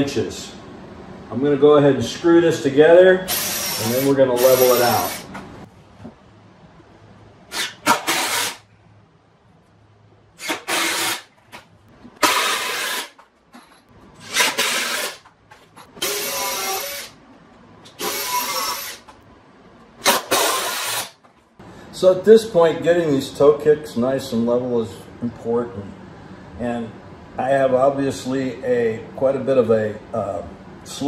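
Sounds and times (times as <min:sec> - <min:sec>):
impact driver driving screws: 0:10.4 - 0:11.3, 0:12.2 - 0:13.2, 0:14.2 - 0:15.3, 0:16.0 - 0:17.1, 0:17.9 - 0:19.1, 0:20.0 - 0:21.2.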